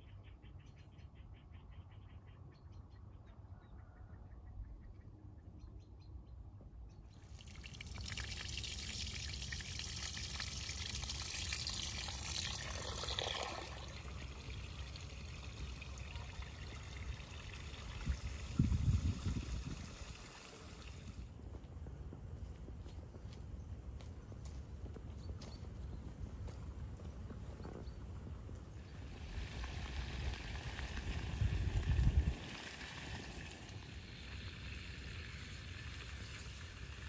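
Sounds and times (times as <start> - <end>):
hand washing rice grains: 7.2 - 21.2
tap water running into bowl: 7.2 - 21.2.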